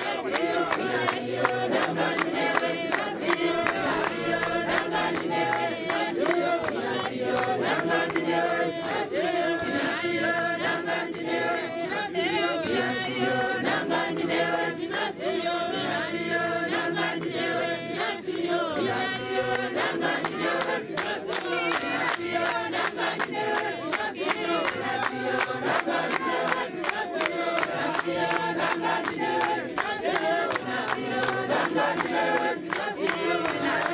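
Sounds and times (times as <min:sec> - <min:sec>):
congregation singing a hymn: 0:00.0 - 0:33.9.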